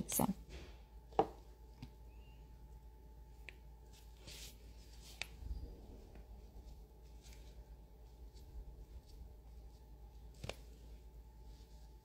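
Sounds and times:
gloved hands handling: 3.4 - 12.0.

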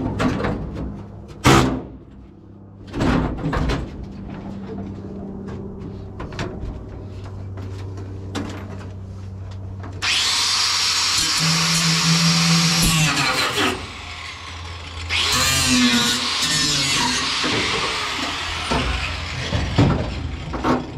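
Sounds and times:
angle grinder grinding steel: 10.0 - 20.9.

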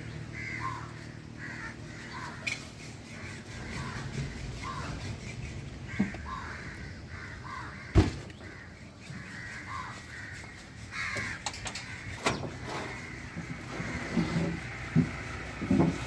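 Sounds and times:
crows cawing: 0.0 - 14.8
sharp knocks: 7.9 - 8.4.

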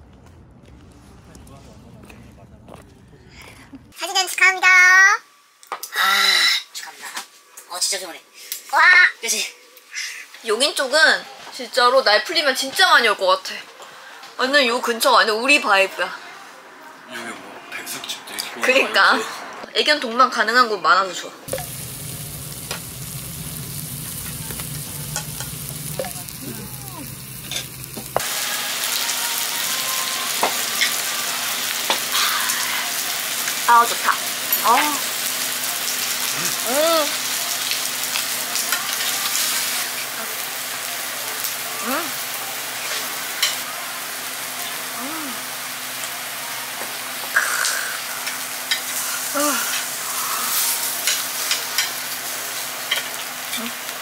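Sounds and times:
food sizzling with pops: 21.5 - 54.0.

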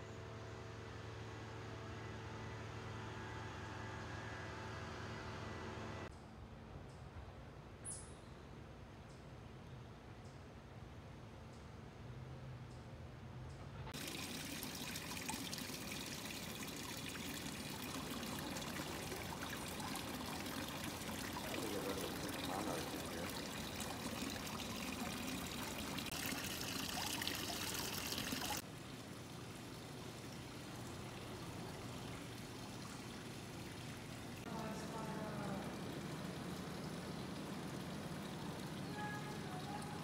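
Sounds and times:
water trickling: 14.0 - 40.0.

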